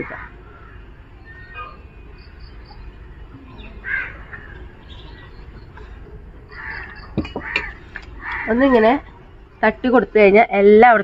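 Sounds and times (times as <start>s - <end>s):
crow cawing: 0.0s - 1.8s, 3.6s - 9.0s.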